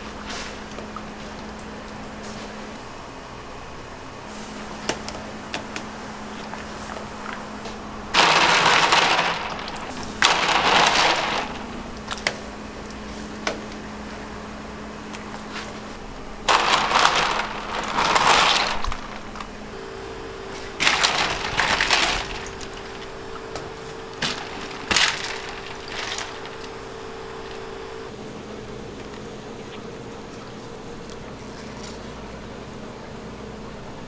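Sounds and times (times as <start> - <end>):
faint kitchen hum: 0.0 - 34.0
water splashing: 6.2 - 13.4, 16.4 - 19.7, 20.5 - 28.1
ice clattering: 8.1 - 12.4, 16.5 - 19.7, 20.5 - 28.1.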